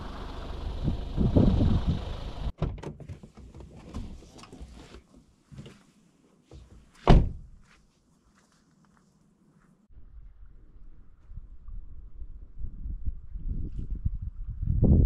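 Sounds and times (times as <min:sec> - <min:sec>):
wind noise: 0:00.6 - 0:02.5, 0:09.9 - 0:15.0.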